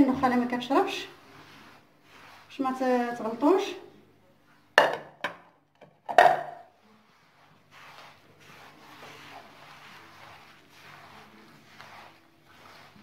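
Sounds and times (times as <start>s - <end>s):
hands rubbing dry bran: 0.0s - 4.8s, 6.5s - 13.0s
ceramic bowl knocking on dish: 4.8s - 5.4s, 6.0s - 6.7s.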